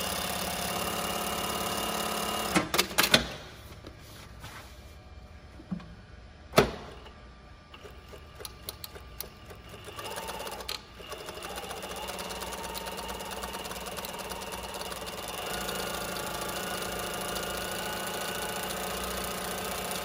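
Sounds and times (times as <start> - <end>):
sewing machine running: 0.0 - 2.6, 7.8 - 20.0
sewing machine mechanical clacks: 7.8 - 20.0.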